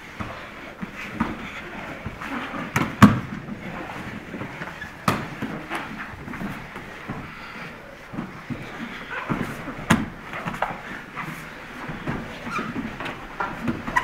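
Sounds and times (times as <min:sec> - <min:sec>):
scuffling of cloth and bodies: 0:00.0 - 0:14.0
slaps and thumps on mats: 0:00.2 - 0:07.3, 0:08.1 - 0:14.0.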